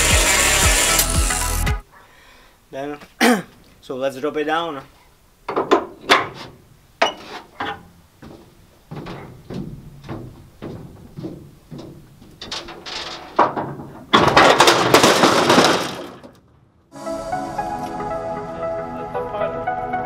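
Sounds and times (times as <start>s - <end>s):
metal knocks and clanks: 5.5s - 16.6s
metal panel crash: 12.4s - 16.5s.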